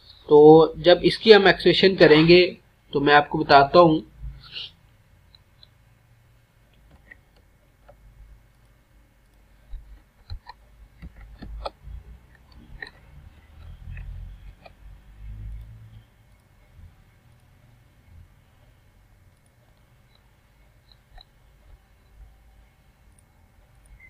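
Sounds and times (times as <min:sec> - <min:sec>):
mouse and keyboard clicks: 0:06.8 - 0:14.8, 0:19.3 - 0:22.2.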